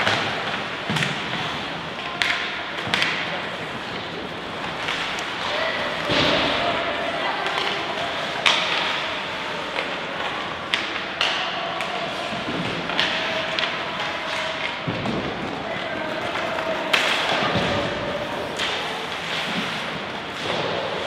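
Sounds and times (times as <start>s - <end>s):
hockey sticks and puck knocking: 0.0s - 21.0s
steady rink hiss: 15.4s - 21.0s.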